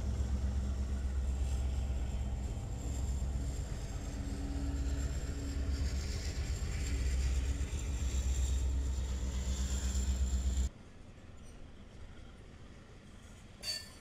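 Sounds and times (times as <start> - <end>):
low vehicle rumble: 0.0 - 10.7
faint hum: 0.0 - 14.0.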